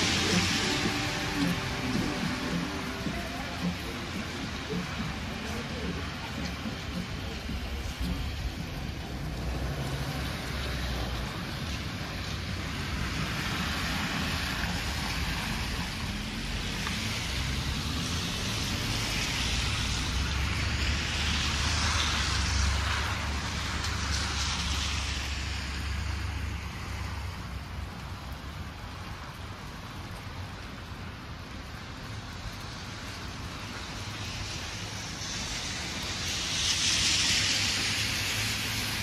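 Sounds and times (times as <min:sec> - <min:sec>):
low engine rumble: 0:00.0 - 0:16.3
tyres hissing on wet road: 0:00.0 - 0:39.0.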